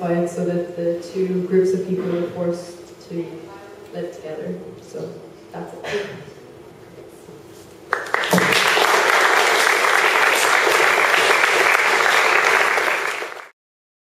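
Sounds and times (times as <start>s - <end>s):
audience applauding: 7.9s - 13.6s.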